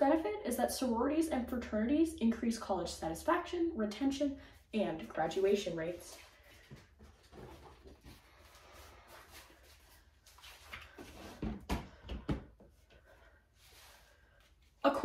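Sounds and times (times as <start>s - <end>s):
person rustling and shuffling: 4.4s - 14.9s.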